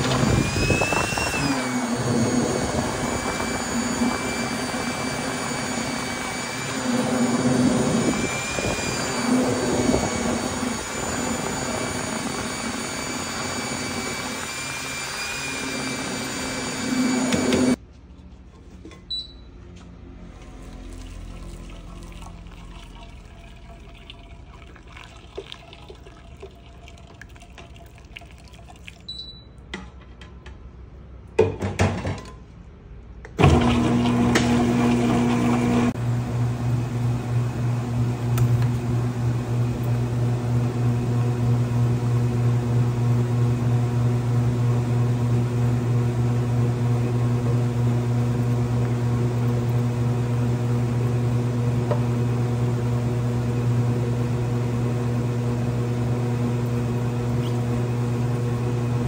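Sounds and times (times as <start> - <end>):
batch freezer humming: 0.0 - 17.8, 33.2 - 59.0.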